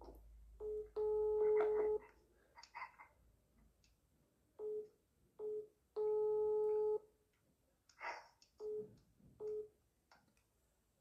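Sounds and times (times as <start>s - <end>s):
telephone ringing tone beeps: 0.6s - 2.0s, 4.6s - 7.0s.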